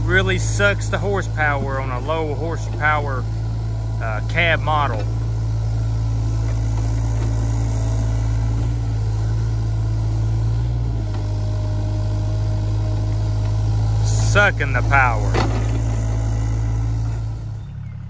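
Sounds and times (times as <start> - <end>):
person talking: 0.0 - 5.2, 13.9 - 15.6
diesel engine droning under load: 0.0 - 18.0.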